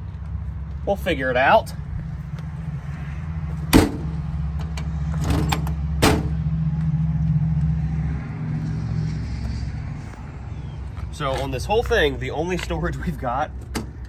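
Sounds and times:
low engine drone: 0:01.7 - 0:11.1.

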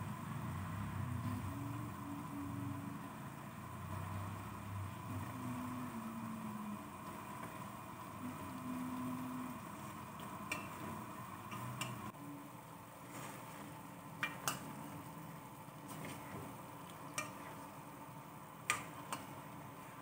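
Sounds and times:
spoon stirring onions in pot: 0:09.7 - 0:12.1, 0:13.0 - 0:15.1, 0:15.8 - 0:18.0, 0:18.6 - 0:20.0.

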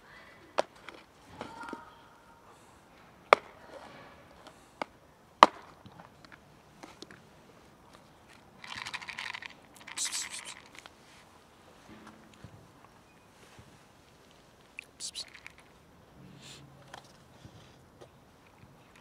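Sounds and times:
cat crunching dry kibble: 0:07.9 - 0:10.9, 0:14.8 - 0:15.8.

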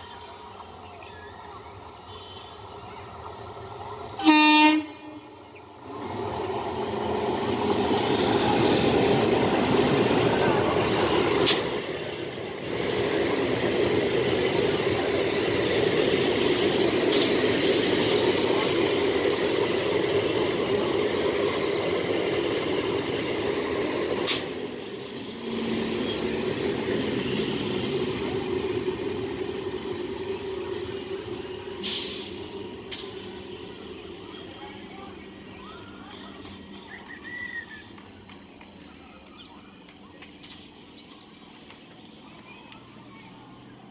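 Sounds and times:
train wheels rumbling on rails: 0:02.7 - 0:43.9
hissing air burst: 0:31.8 - 0:33.6.

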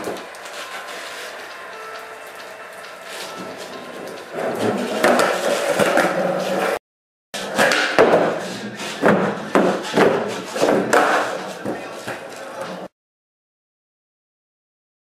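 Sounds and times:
skateboard wheels rolling: 0:00.0 - 0:06.8, 0:07.4 - 0:12.9
skateboard clacking on plywood: 0:03.6 - 0:06.8, 0:07.4 - 0:12.9.

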